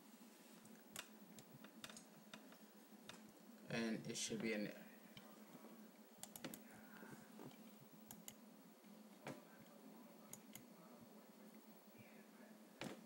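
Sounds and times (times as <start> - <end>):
faint steady hum: 0.0 - 13.0
computer mouse clicks: 6.2 - 6.6, 7.5 - 8.4, 10.3 - 10.7.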